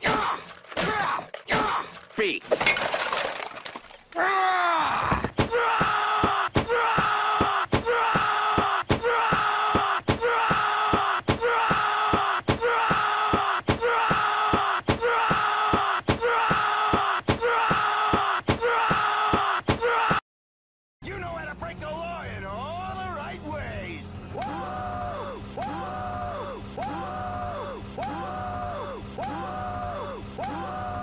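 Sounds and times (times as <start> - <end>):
cartoon character wailing cry: 24.4 - 31.0.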